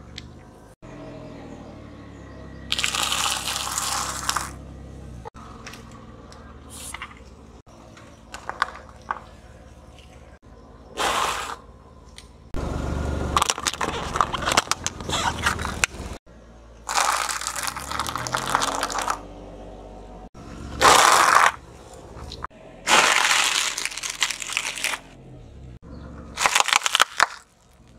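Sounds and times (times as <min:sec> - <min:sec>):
car tyre crunching food: 0:02.6 - 0:10.4, 0:13.3 - 0:16.2, 0:16.8 - 0:19.2, 0:20.6 - 0:25.2, 0:26.3 - 0:27.9
crackling: 0:02.7 - 0:04.6, 0:16.9 - 0:19.2, 0:20.8 - 0:25.1, 0:26.4 - 0:27.9.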